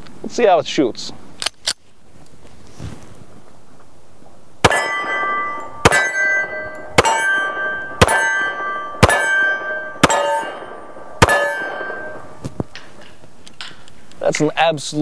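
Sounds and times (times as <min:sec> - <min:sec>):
pistol shots: 0:04.6 - 0:12.5
ringing metallic clang: 0:04.6 - 0:13.0.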